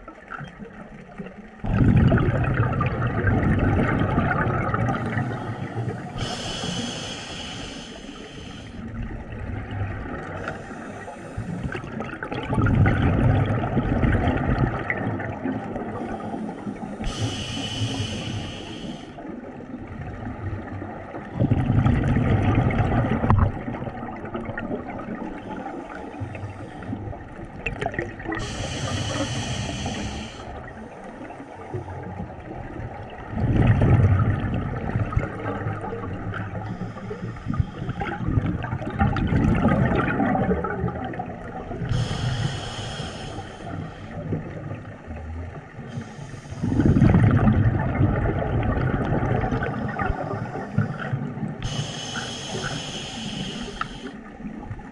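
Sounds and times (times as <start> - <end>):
exhaled bubbles rushing: 0.0 - 6.7, 11.4 - 16.3, 19.3 - 36.8, 37.5 - 42.4, 46.6 - 51.8
hissing regulator inhalations: 5.1 - 8.9, 10.4 - 11.8, 16.0 - 19.2, 28.4 - 31.6, 36.6 - 38.2, 41.9 - 44.2, 45.9 - 47.0, 49.6 - 54.3.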